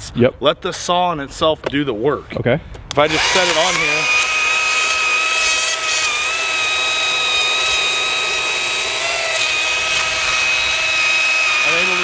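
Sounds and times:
electric chainsaw cutting log: 3.0s - 12.0s.

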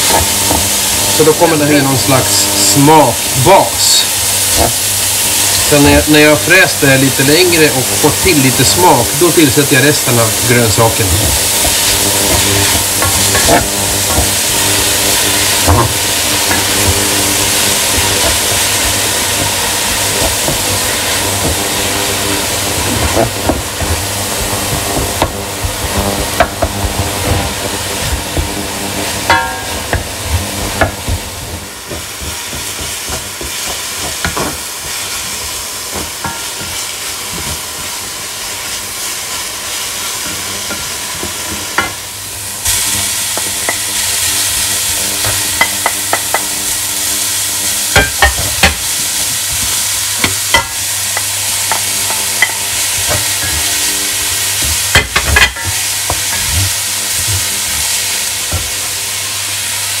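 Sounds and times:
vegetables sizzling in oil: 0.0s - 60.0s
spatula scraping a pan: 11.0s - 37.9s, 47.9s - 59.0s.

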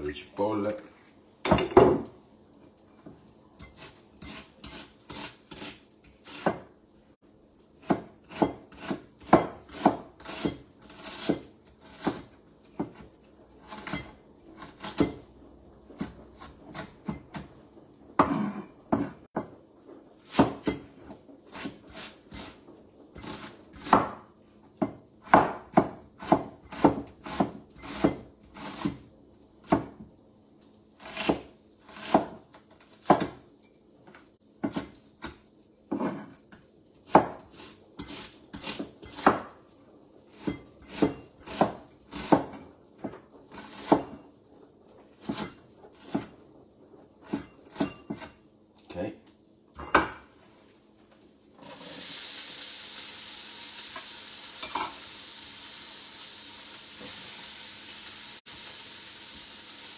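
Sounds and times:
knife chopping on wooden board: 3.7s - 6.7s, 7.8s - 15.2s, 20.3s - 20.9s, 23.2s - 24.2s, 24.8s - 29.0s, 31.0s - 32.4s, 33.0s - 33.4s, 37.1s - 39.5s, 40.4s - 44.2s.

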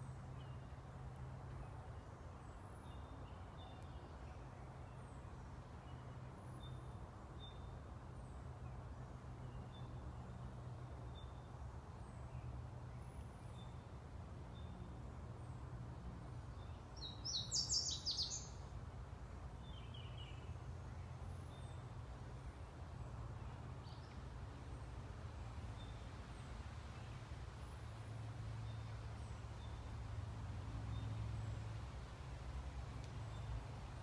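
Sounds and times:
birds chirping: 16.7s - 18.6s.

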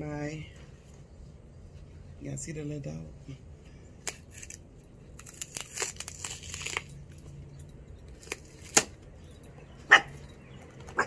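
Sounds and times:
cardboard box tearing: 5.2s - 6.9s.

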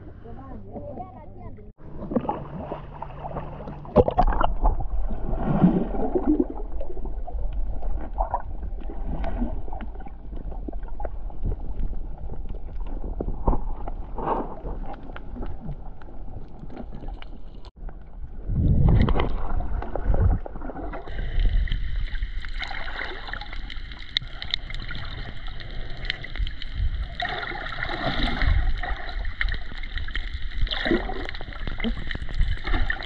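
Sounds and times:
muffled underwater water gurgling: 0.0s - 33.0s
water surges: 16.4s - 33.0s.

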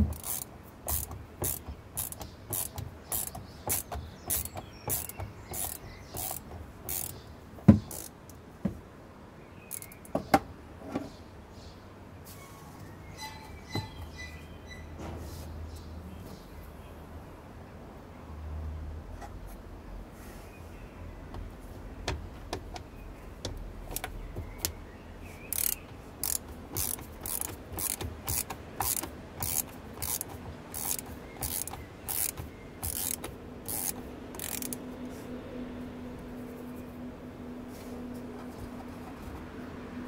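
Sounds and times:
socket ratchet clicking: 0.0s - 7.2s, 7.8s - 8.4s, 23.5s - 24.7s, 25.5s - 34.8s.

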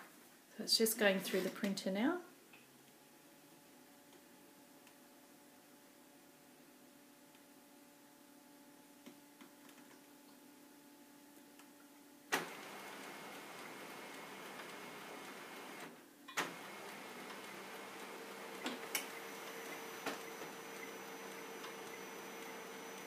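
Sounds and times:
printer mechanism running: 12.4s - 23.0s.

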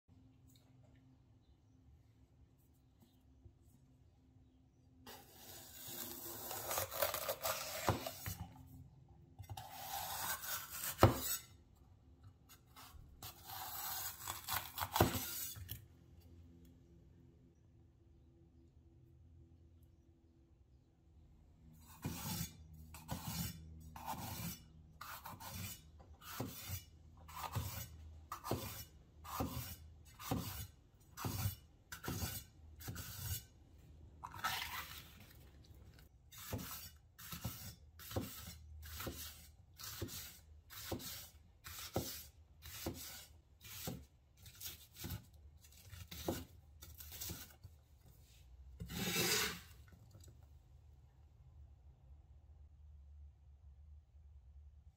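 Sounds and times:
knife slicing on wooden board: 5.1s - 8.5s, 9.4s - 11.5s, 22.0s - 33.5s, 36.3s - 47.6s, 48.8s - 49.7s
knife scraping across board: 9.4s - 11.6s, 12.8s - 15.8s, 21.8s - 33.5s, 36.3s - 47.7s, 48.8s - 49.8s.

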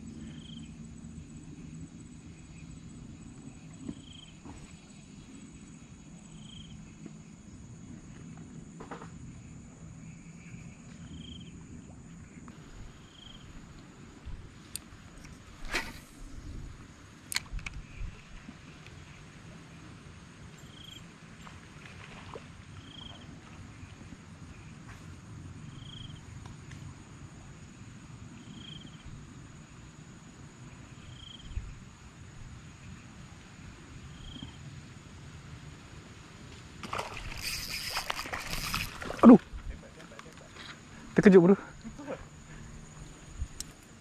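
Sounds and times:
insect drone: 0.0s - 44.0s
brief swish: 15.6s - 16.2s.

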